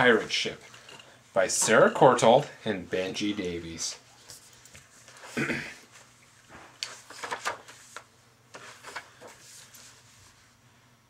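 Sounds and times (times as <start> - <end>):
picture book rustling: 3.2 - 10.6.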